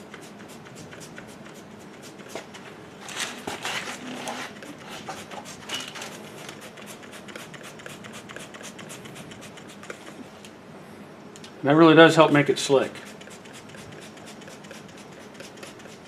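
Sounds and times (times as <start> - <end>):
spray bottle squirting: 13.0 - 16.0.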